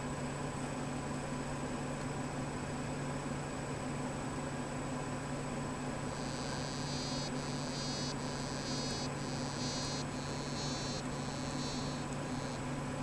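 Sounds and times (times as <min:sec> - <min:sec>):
frog buzzing call underwater: 0:06.1 - 0:12.6.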